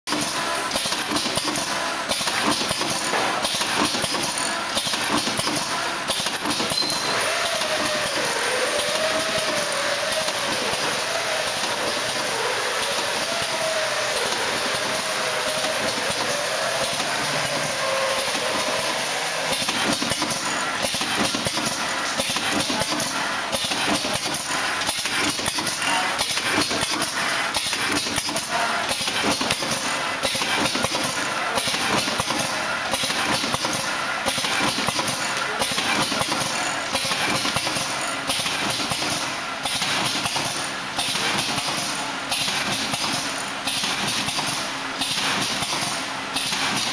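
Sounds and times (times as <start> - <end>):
packing machine clatter and hiss: 0.1 - 46.9
rapid machine clicking: 0.1 - 46.9.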